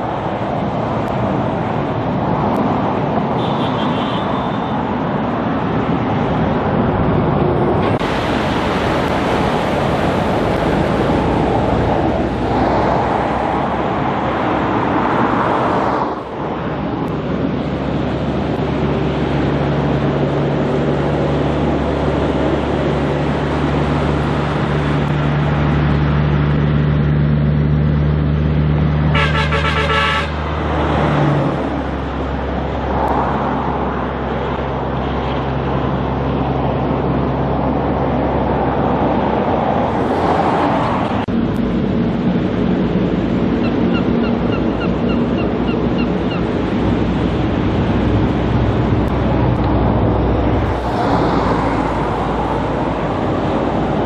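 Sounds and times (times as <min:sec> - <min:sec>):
trucks and cars passing: 0:00.0 - 0:54.0
truck horn blast: 0:03.4 - 0:04.7, 0:29.1 - 0:30.4.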